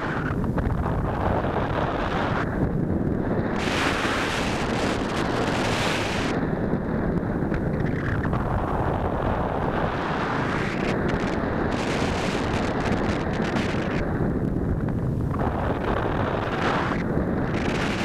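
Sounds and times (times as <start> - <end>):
wind on microphone: 0.0 - 18.0.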